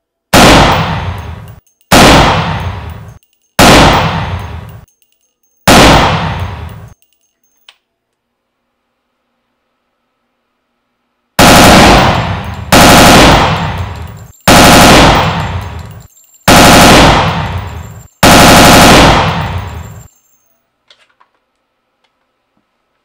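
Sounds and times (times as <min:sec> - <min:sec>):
rifle fire bursts: 0:00.3 - 0:04.9, 0:05.7 - 0:07.0, 0:11.4 - 0:20.1.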